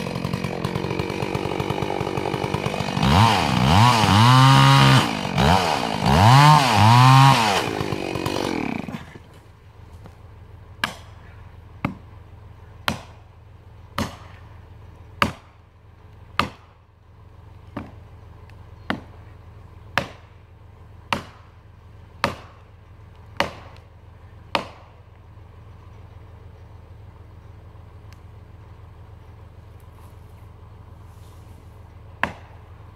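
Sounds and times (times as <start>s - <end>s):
chainsaw cutting wood: 0.0s - 9.4s, 15.2s - 15.6s, 16.3s - 16.8s, 22.2s - 23.9s, 24.5s - 25.1s.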